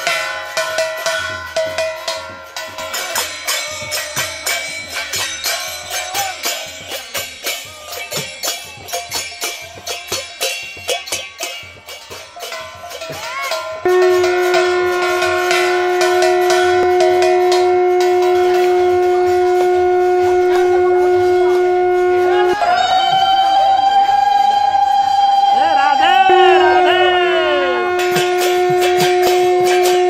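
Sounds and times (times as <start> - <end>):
jingling percussion: 0.0 - 30.0
conch shell blast: 13.8 - 30.0.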